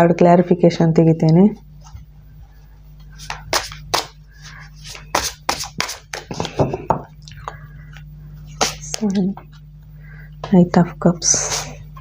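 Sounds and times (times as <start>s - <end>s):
cards being shuffled: 3.1s - 6.7s, 7.9s - 9.6s
low hum: 6.4s - 12.0s.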